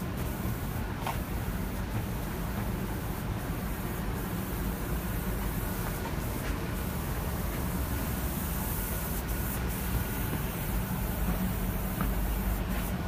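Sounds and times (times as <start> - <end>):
high hiss: 2.2 - 13.0.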